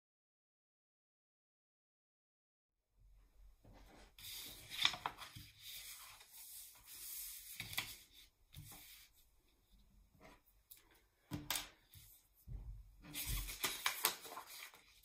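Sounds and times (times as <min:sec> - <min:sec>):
paper sheets rustling: 0:03.7 - 0:09.2, 0:13.0 - 0:15.0
paper crackles: 0:04.1 - 0:09.1, 0:13.0 - 0:15.0.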